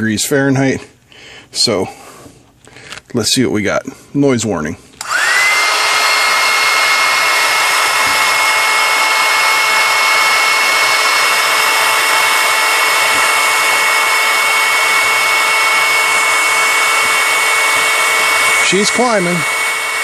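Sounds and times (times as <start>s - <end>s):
heat gun fan blowing air: 5.0s - 20.0s.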